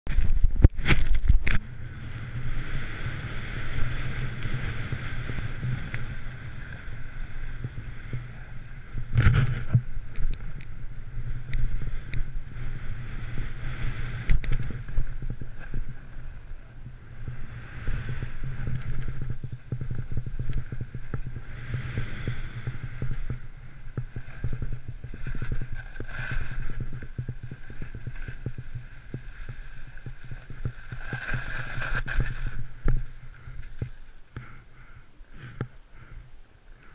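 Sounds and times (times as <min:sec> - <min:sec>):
wind buffeting camera: 0:00.1 - 0:34.8
snow hissing under skis: 0:21.4 - 0:32.8.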